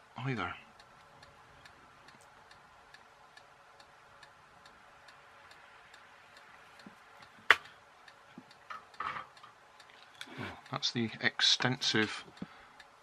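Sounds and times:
faint even ticking: 0.0s - 13.0s.

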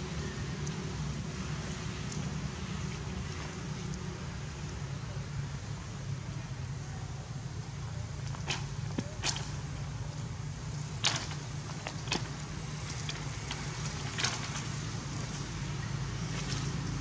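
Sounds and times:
low outdoor rumble: 0.0s - 17.0s
clicks and knocks on bamboo: 8.2s - 9.6s, 11.0s - 15.4s.

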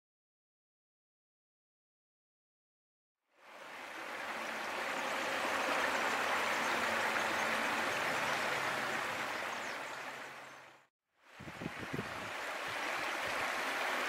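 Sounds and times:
stream running water: 3.3s - 14.0s.

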